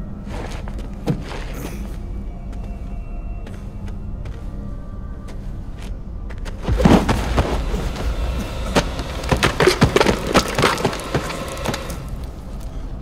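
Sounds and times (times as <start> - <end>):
low rumble: 4.6 - 13.0
falling rock crashing: 6.6 - 12.3.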